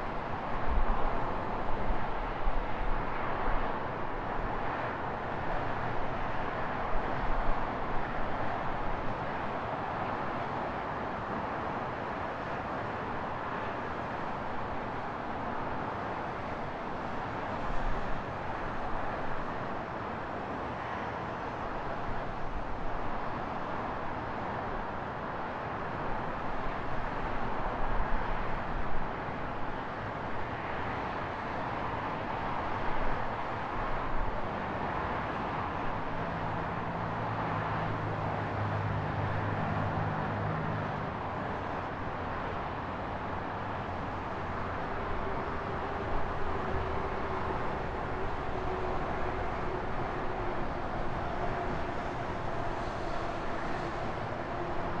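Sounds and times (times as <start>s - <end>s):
street traffic: 0.0s - 55.0s
vehicle engine hum: 36.0s - 55.0s.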